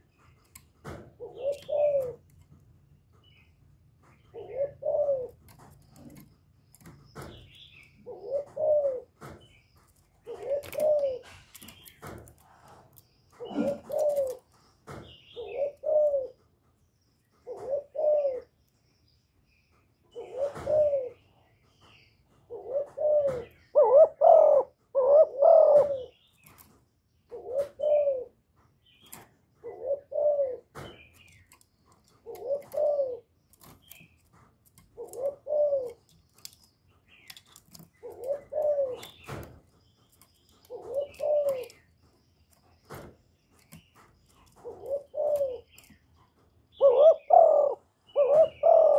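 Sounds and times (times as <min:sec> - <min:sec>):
dove cooing: 0:00.0 - 0:02.4, 0:04.3 - 0:06.8, 0:07.8 - 0:09.3, 0:10.2 - 0:14.5, 0:15.3 - 0:16.4, 0:17.4 - 0:18.6, 0:20.1 - 0:21.3, 0:22.5 - 0:26.3, 0:27.3 - 0:28.4, 0:29.5 - 0:30.8, 0:31.4 - 0:34.0, 0:34.8 - 0:36.5, 0:37.4 - 0:39.5, 0:40.5 - 0:42.1, 0:44.4 - 0:46.0, 0:46.7 - 0:48.9.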